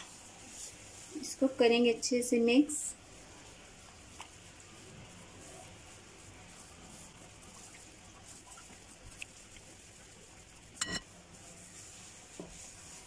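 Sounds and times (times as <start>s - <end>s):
spatula clinking against glass: 10.8s - 11.1s
spatula scraping in bowl: 10.8s - 11.1s.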